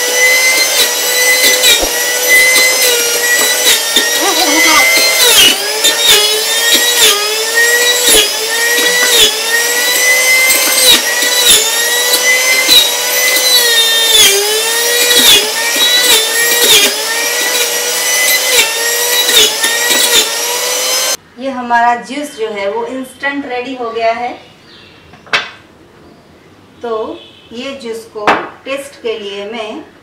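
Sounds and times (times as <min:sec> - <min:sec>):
electric juicer motor whining: 0:00.0 - 0:21.2.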